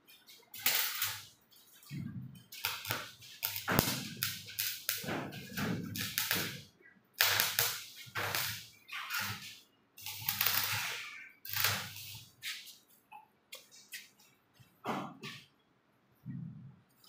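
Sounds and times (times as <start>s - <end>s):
welding arc crackling: 0.1s - 12.8s.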